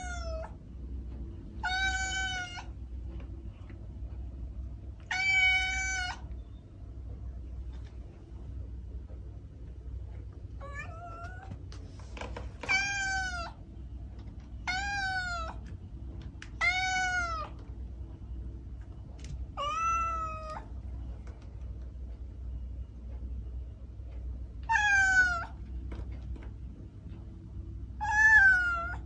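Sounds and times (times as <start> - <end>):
kitten meowing: 12.6 - 13.6, 28.0 - 29.0.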